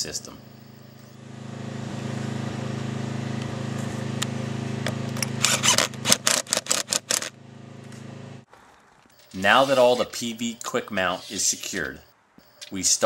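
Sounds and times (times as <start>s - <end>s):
impact driver bursts: 5.3s - 7.4s.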